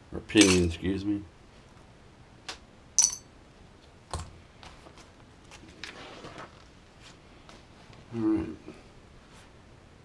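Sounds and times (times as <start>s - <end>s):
small parts and tools tapping: 0.4s - 0.8s, 3.0s - 3.3s.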